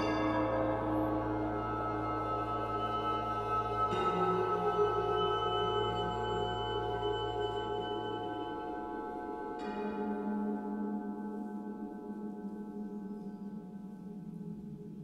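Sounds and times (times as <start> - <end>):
bell-like note: 0.0 - 8.9
chamber ensemble playing slow music: 0.0 - 14.8.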